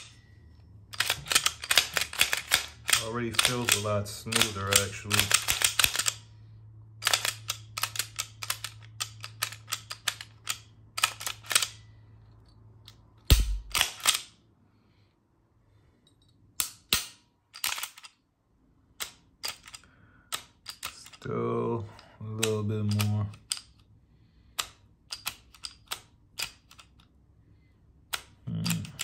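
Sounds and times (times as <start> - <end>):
pistol slide metallic clicks: 12.8 - 14.4, 16.6 - 18.2, 24.6 - 27.1.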